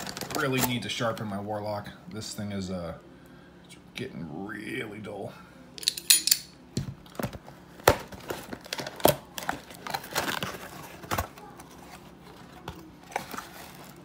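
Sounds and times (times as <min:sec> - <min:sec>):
packaging crinkling: 0:00.0 - 0:00.8, 0:07.0 - 0:14.0.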